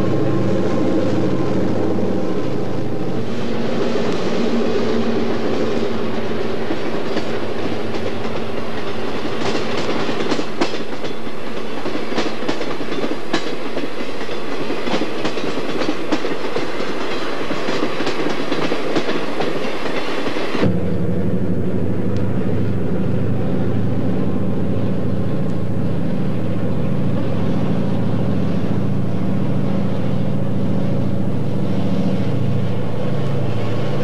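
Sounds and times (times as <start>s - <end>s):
diesel locomotive drone: 0.0s - 34.0s
train wheels clattering over joints: 5.2s - 20.6s.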